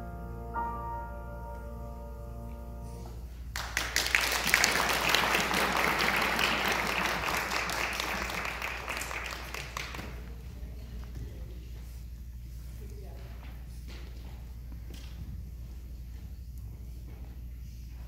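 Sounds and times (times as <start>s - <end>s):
piano chord ringing: 0.0s - 3.4s
audience applause: 3.5s - 10.4s.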